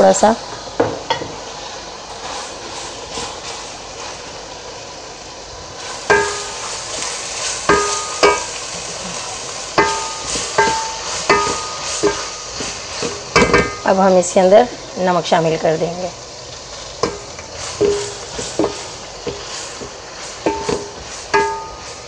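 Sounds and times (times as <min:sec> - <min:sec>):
vegetables sizzling in oil: 0:00.0 - 0:22.0
spatula knocking against pan: 0:06.1 - 0:06.6, 0:07.7 - 0:08.5, 0:09.8 - 0:12.3, 0:17.0 - 0:19.4, 0:20.5 - 0:21.9.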